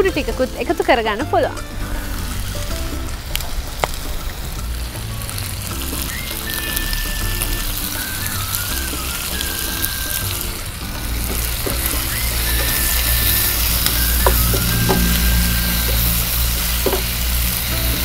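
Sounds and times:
background music: 0.0 - 18.0
food sizzling in oil: 0.0 - 18.0.

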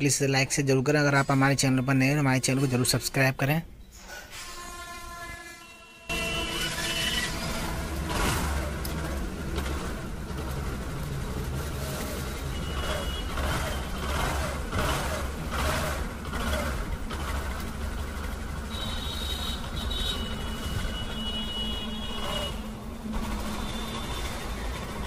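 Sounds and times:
motorcycle engine running: 7.3 - 25.0.

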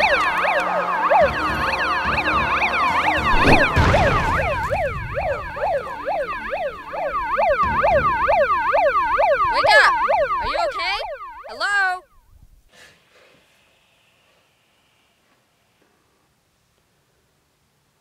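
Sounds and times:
megaphone siren wailing: 0.0 - 12.1
dull thud: 3.3 - 6.7.

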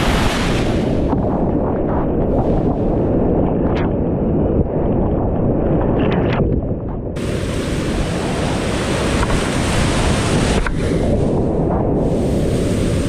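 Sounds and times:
whitewater rapids rushing: 7.2 - 11.4.

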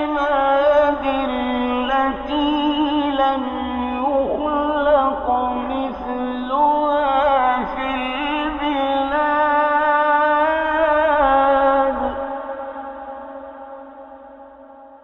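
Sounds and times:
man chanting melodically: 0.0 - 13.7.

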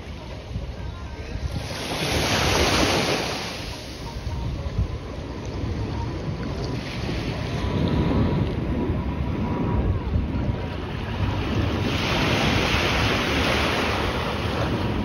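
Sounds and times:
wind buffeting microphone: 0.0 - 15.0
distant jet engine roar: 5.0 - 15.0.

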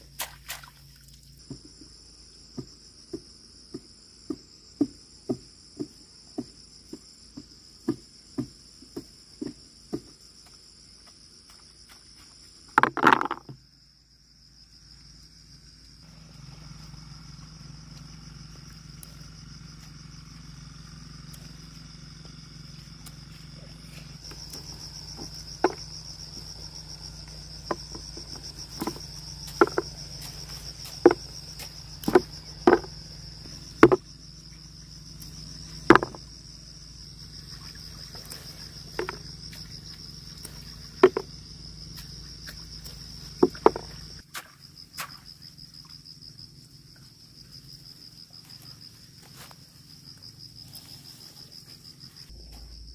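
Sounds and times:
insects chirring: 0.0 - 52.9
pods dropping into plastic basin: 12.8 - 13.5.

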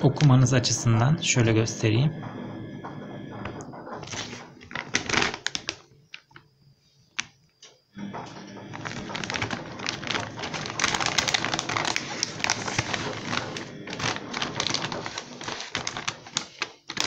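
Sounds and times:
plastic bag crinkling: 4.0 - 6.3, 8.7 - 17.0.

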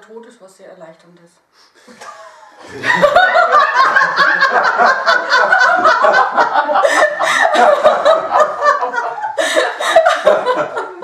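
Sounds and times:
woman laughing: 2.2 - 11.0.

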